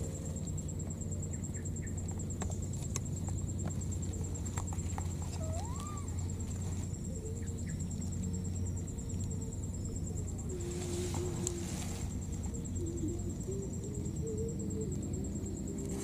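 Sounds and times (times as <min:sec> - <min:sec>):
steady low hum: 0:00.0 - 0:16.0
rustling of dry grass and leaves: 0:02.6 - 0:09.3, 0:09.9 - 0:13.8.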